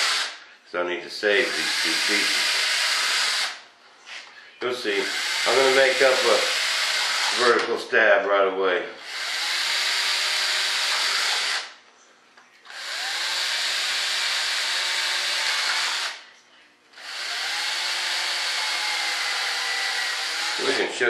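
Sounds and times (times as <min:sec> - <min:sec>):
cordless drill whining: 0:01.5 - 0:03.6, 0:05.1 - 0:07.6, 0:09.0 - 0:11.7, 0:12.7 - 0:16.2, 0:17.0 - 0:20.9.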